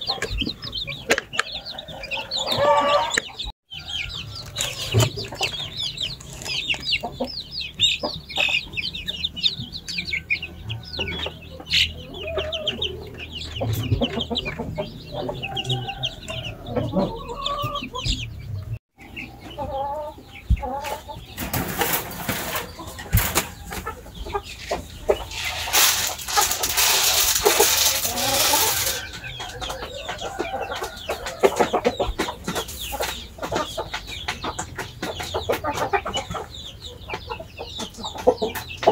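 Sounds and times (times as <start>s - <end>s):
chickens clucking: 0.0s - 38.9s
chicks peeping: 0.0s - 38.9s
loud rustling: 25.2s - 29.1s.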